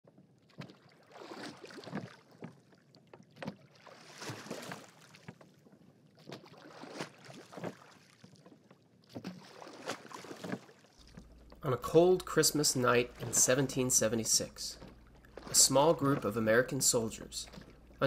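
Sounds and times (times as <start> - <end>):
water sloshing: 0.1 - 18.0
oars splashing: 0.2 - 18.0.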